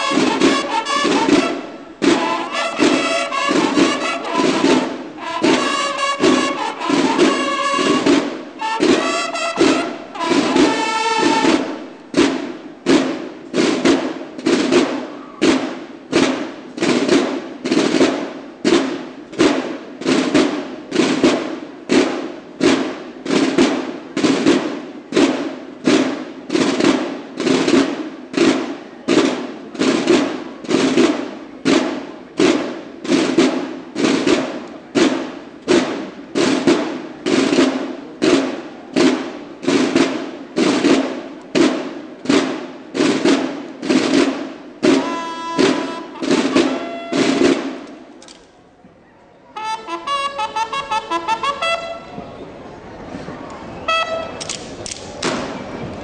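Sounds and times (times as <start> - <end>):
bugles playing: 0.0 - 23.8, 30.0 - 48.4, 49.5 - 52.5, 53.8 - 55.6
drums beating: 0.0 - 48.2, 49.6 - 52.3.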